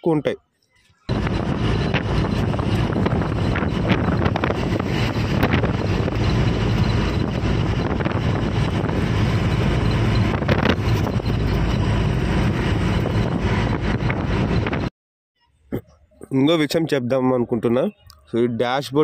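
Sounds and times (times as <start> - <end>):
truck cruising on highway: 1.1 - 14.9
wind buffeting microphone: 1.1 - 14.9.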